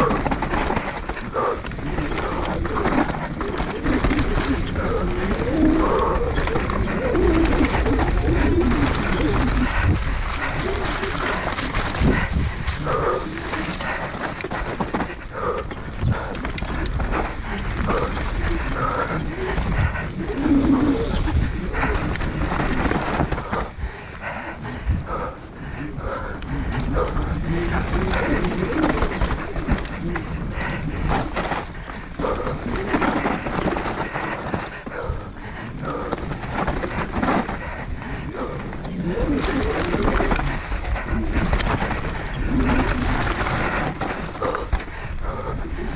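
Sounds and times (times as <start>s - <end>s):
wind on microphone: 0.0s - 14.0s
bike rattling over ground: 0.0s - 45.9s
rider breathing hard and grunting: 0.0s - 45.9s
wind buffeting microphone: 0.0s - 45.9s.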